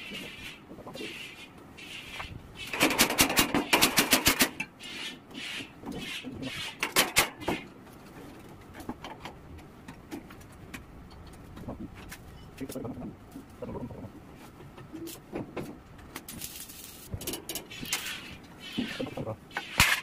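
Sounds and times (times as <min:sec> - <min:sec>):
arc welding crackling: 0:16.1 - 0:20.0.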